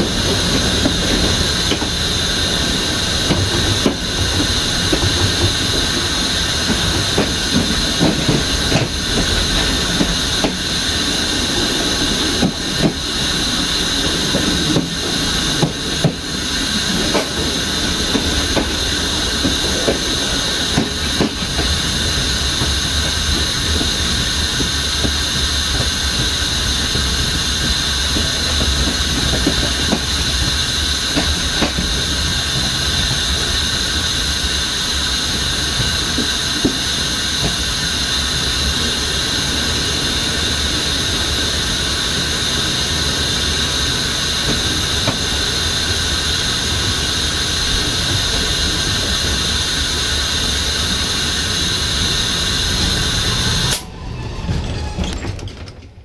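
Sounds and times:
track clacks: 0.0 - 56.0
train rumbling on rails: 0.0 - 56.0
high-pitched wheel squeal: 53.6 - 55.3.

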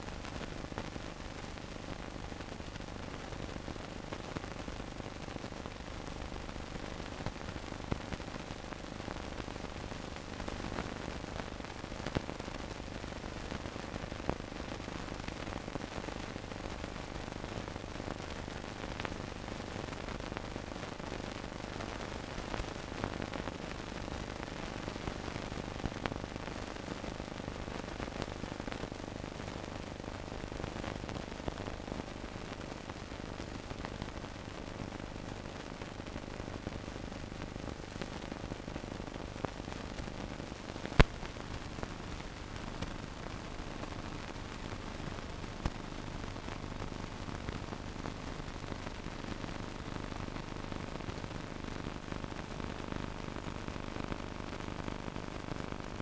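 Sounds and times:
film hiss and crackle: 0.0 - 56.0
clicks and pops: 40.8 - 41.4.

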